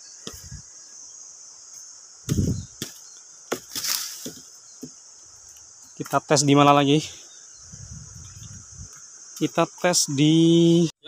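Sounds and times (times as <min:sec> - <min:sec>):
axe chopping into wood: 0:02.2 - 0:05.0.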